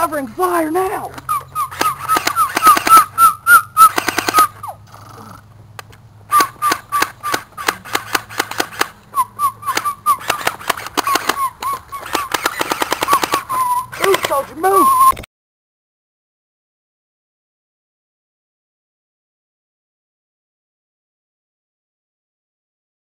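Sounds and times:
mock machine-gun fire: 0:01.7 - 0:03.1, 0:03.8 - 0:04.5, 0:12.0 - 0:14.4.

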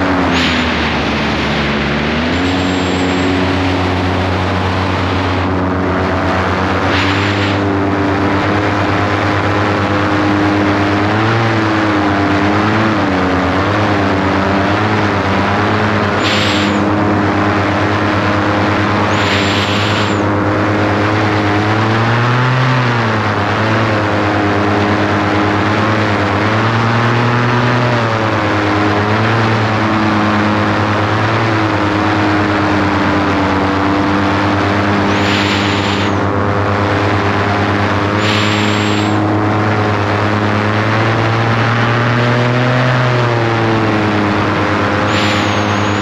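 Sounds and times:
engine running: 0:00.0 - 0:46.0
short bursts of hiss: 0:38.2 - 0:39.2.

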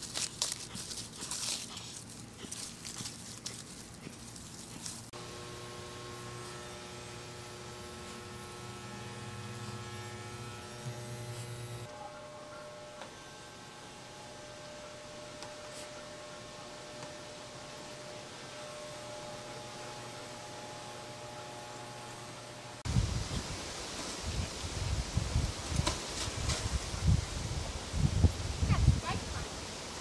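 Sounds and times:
rustling: 0:00.0 - 0:05.2
electrical hum with held tones: 0:00.0 - 0:23.2.

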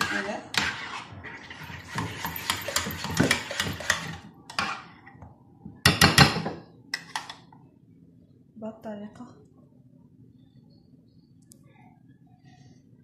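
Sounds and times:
spoon scraping a ceramic bowl: 0:00.0 - 0:04.9.

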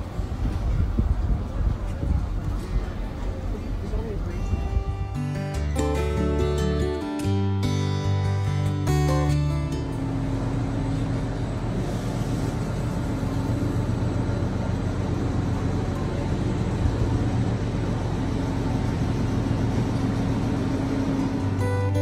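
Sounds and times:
continuous rushing noise: 0:00.0 - 0:05.3, 0:09.9 - 0:22.0
low machinery hum and rumble: 0:00.0 - 0:22.0.

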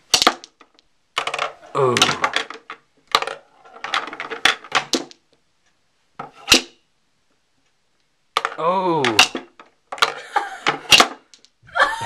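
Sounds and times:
pool balls clacking: 0:00.0 - 0:05.3, 0:08.4 - 0:11.5.

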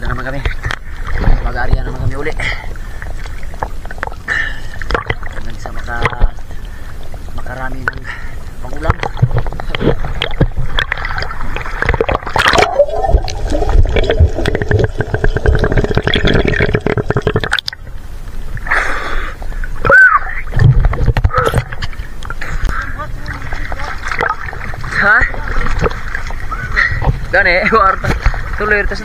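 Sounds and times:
muffled underwater gurgling: 0:00.0 - 0:29.0
seawater sloshing and splashing: 0:00.2 - 0:16.6, 0:20.3 - 0:29.0.

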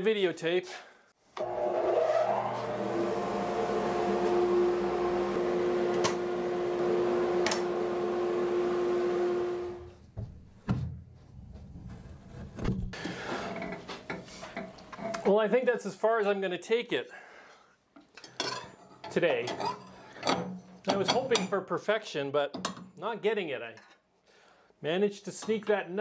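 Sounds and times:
table saw motor humming: 0:01.4 - 0:09.9.

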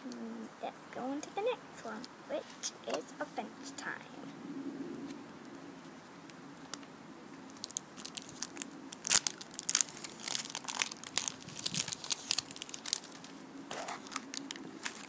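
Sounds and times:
plastic egg cracking: 0:07.5 - 0:15.0.

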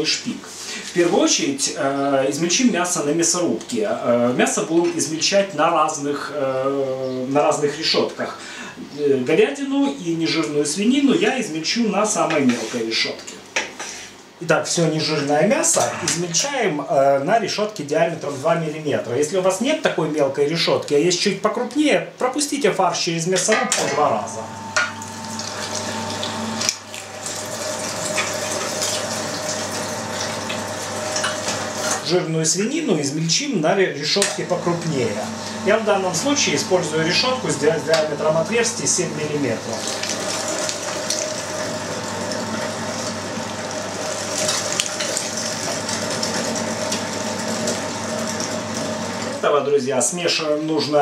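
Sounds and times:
electric meat grinder whining: 0:23.8 - 0:32.2, 0:34.2 - 0:49.4.

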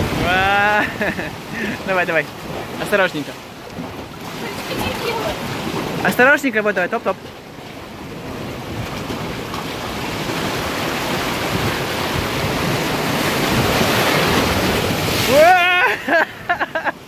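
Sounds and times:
sea waves rushing through rocks: 0:00.0 - 0:17.0
woman exclaiming: 0:15.3 - 0:16.0.

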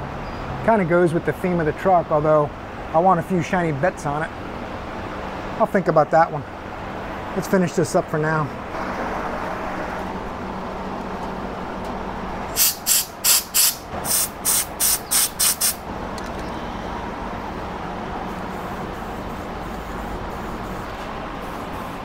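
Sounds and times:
spray can sputtering hiss: 0:12.6 - 0:15.8.

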